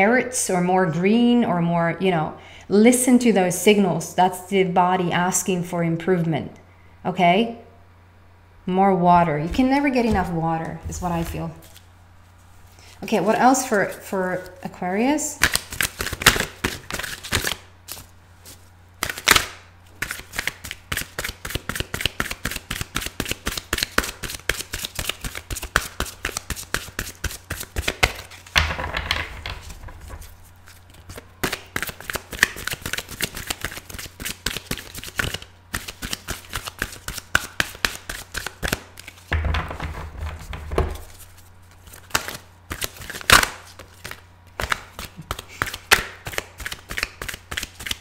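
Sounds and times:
cards being shuffled: 0:09.4 - 0:13.0, 0:15.4 - 0:48.0.

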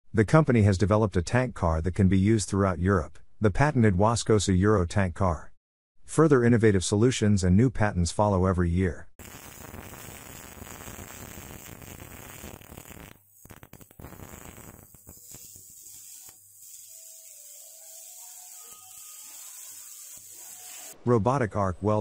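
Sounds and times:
faint high tones: 0:16.9 - 0:21.1.

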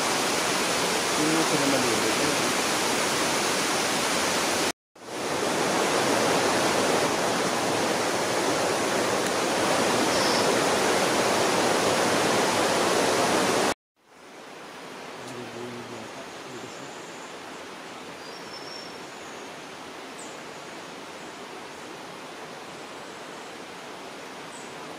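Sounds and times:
fast-flowing water rushing: 0:00.0 - 0:13.8.

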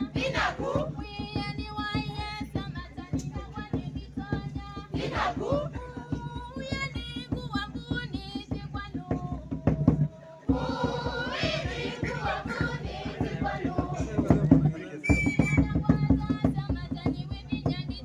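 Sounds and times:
group singing: 0:00.0 - 0:01.6, 0:04.5 - 0:06.8, 0:09.5 - 0:15.0
drums beating fast rhythm: 0:00.0 - 0:18.0.

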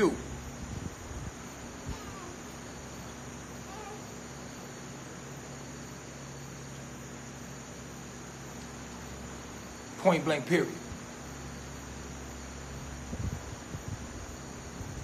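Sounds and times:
low steady hum: 0:00.0 - 0:15.0
night insects chirping: 0:00.0 - 0:15.0.

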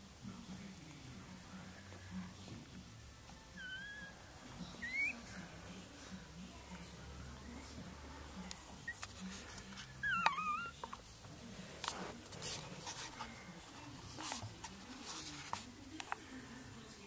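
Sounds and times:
puppy whimpering: 0:03.6 - 0:05.3, 0:08.8 - 0:09.2, 0:09.8 - 0:10.9
soft clicks and rustles: 0:08.4 - 0:16.4.

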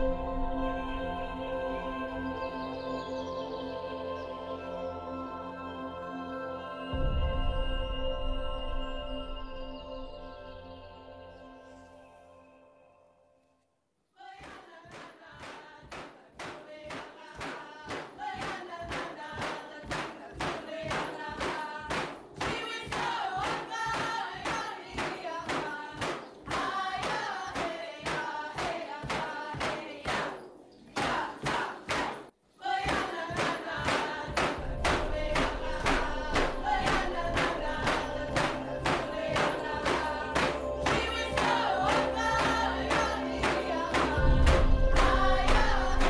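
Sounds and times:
group singing a chant: 0:00.0 - 0:07.6, 0:14.2 - 0:46.0
steady drum beat: 0:32.9 - 0:46.0.

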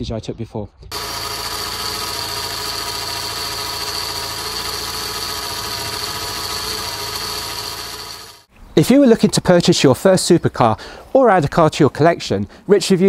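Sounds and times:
car engine idling: 0:00.9 - 0:08.5
high-pitched belt whine: 0:00.9 - 0:08.5.

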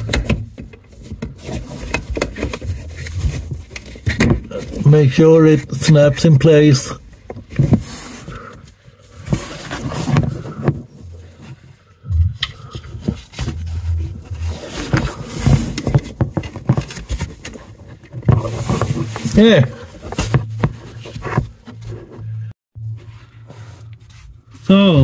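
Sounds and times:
gloved hands scraping and rustling: 0:00.7 - 0:24.7
short low rumbles: 0:12.0 - 0:15.5.

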